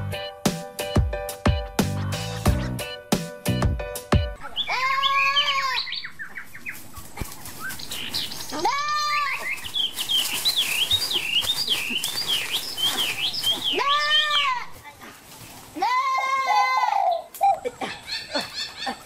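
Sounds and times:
bird warbling song: 4.4 - 14.5
goat bleating: 4.7 - 5.9.

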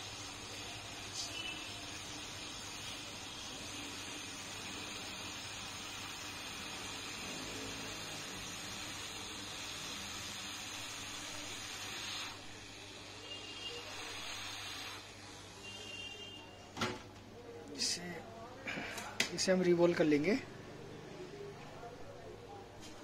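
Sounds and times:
hot air station hissing: 0.0 - 16.4.

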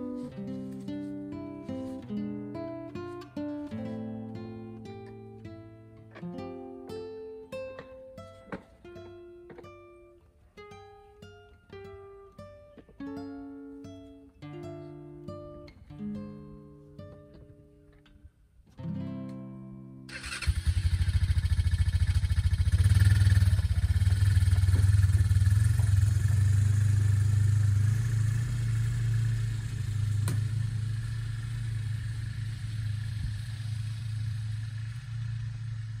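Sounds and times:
atv engine starting and running: 20.1 - 36.0.

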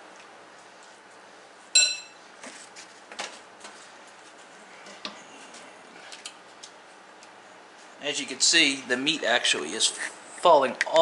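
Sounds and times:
utensil clinking on plate: 1.8 - 2.2.

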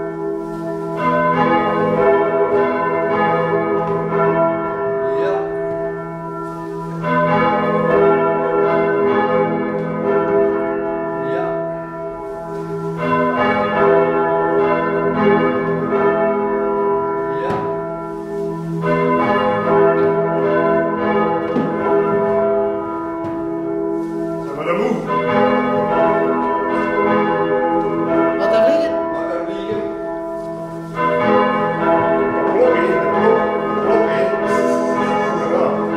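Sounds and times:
church bells ringing: 0.0 - 35.9.

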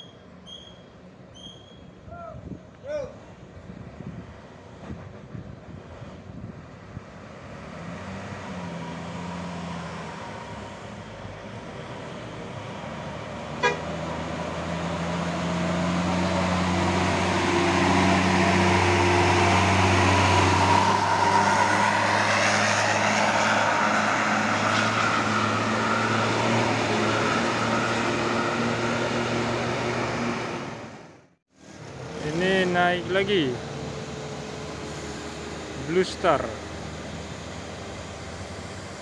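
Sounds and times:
bus diesel engine labouring: 3.1 - 39.0
multi-tone bus horn: 13.6 - 14.0.

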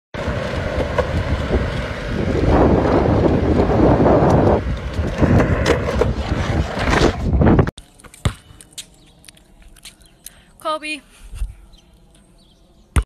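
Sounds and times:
wind buffeting microphone: 0.2 - 7.7
skateboard wheels rolling on asphalt: 0.2 - 9.2.

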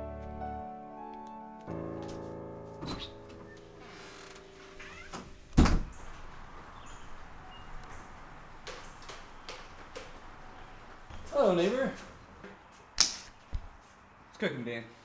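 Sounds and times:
soft piano music: 0.0 - 5.6
door shutting with thud: 2.8 - 3.5, 4.1 - 6.2
footsteps on metal stairs: 8.5 - 12.6.

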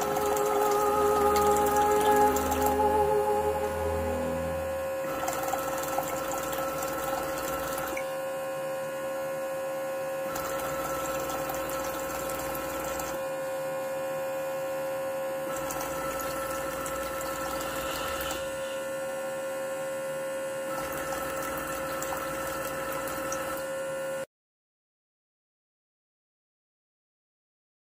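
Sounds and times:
pump whining: 0.0 - 8.3, 10.2 - 13.5, 15.4 - 23.8.

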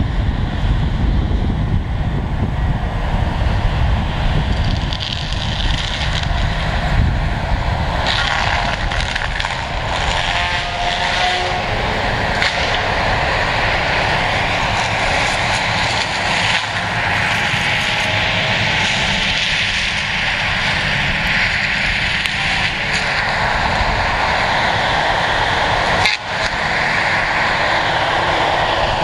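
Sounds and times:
diesel engine running hard: 0.0 - 29.0
grinder shredding wood: 4.4 - 29.0.

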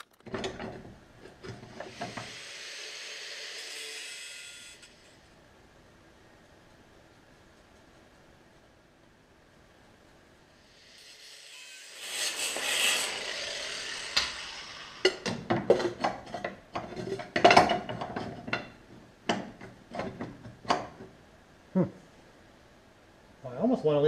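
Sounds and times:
angle grinder cutting steel: 1.9 - 5.1, 10.7 - 15.2.

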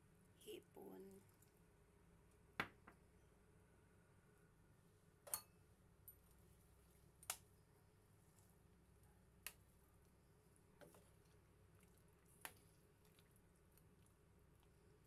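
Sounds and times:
metal spoon clinking on pot: 5.3 - 5.5.

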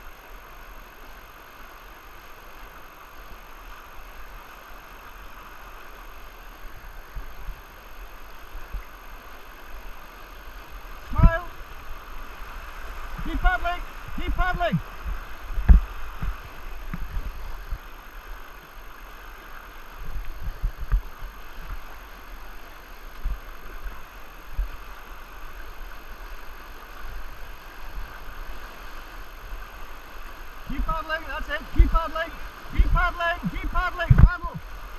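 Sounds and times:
whitewater rushing: 0.0 - 34.9
person shouting: 11.1 - 11.5, 13.2 - 14.8, 31.8 - 34.6
low thumps: 15.0 - 17.8.

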